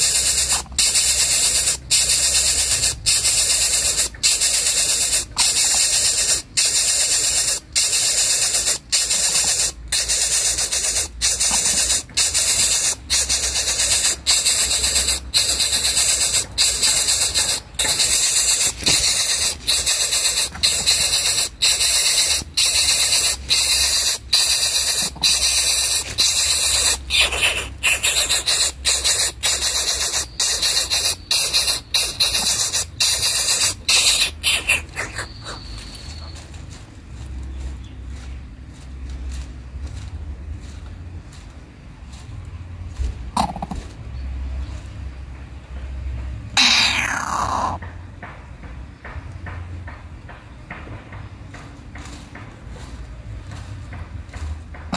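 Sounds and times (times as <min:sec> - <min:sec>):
nestling hissing: 0:00.0 - 0:36.3, 0:46.6 - 0:47.8.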